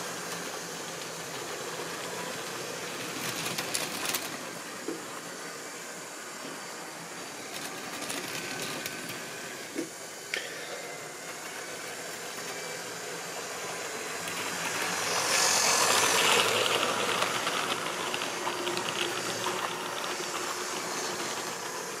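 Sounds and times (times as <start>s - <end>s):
small wheels rattling on rail: 0.0s - 5.4s, 7.1s - 22.0s
small electric motor running: 11.0s - 22.0s.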